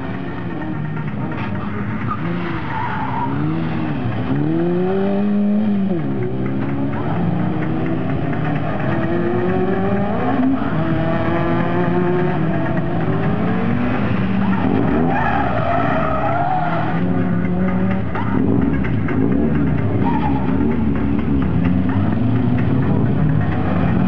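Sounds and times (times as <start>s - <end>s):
car engine revving: 0.0s - 24.0s
tyres squealing: 1.2s - 3.6s, 14.3s - 17.4s, 19.9s - 20.7s.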